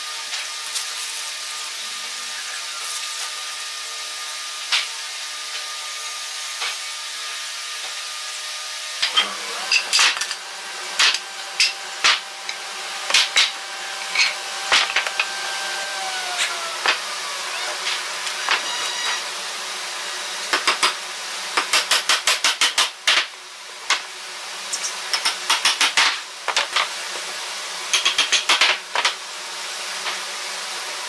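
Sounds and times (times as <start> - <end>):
steady machine hum: 8.6 - 21.6.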